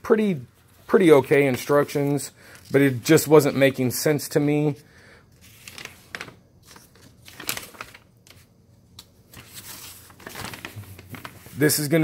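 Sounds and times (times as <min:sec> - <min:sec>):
paper rustling and crinkling: 0:05.4 - 0:12.0.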